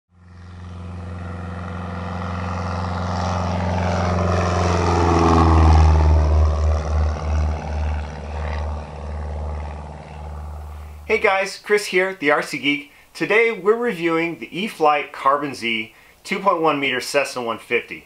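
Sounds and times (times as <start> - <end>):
propeller airplane engine drone: 0.1 - 13.2, 15.9 - 16.2.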